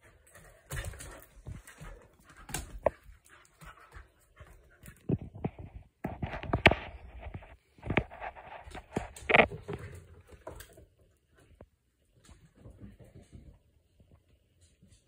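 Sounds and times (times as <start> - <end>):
dog panting: 0.0 - 5.1
clicks and rustles: 0.0 - 10.9.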